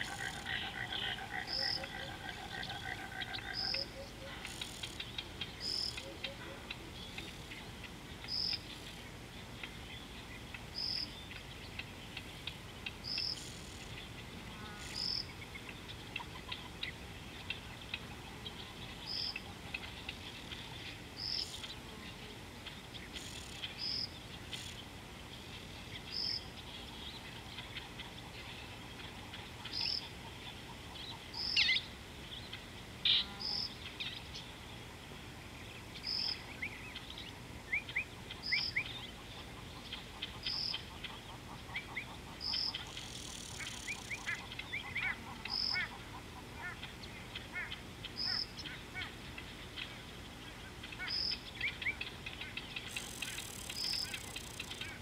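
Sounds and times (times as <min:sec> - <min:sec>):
faint chirps and ticks: 0:00.0 - 0:55.0.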